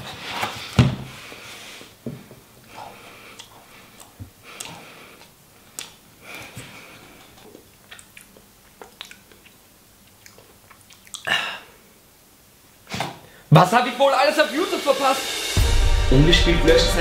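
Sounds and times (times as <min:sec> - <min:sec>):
person chewing bread: 0:02.6 - 0:11.8.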